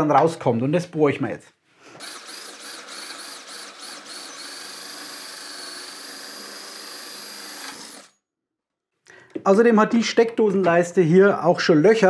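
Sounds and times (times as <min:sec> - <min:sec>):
drill boring through wood: 0:02.0 - 0:08.2.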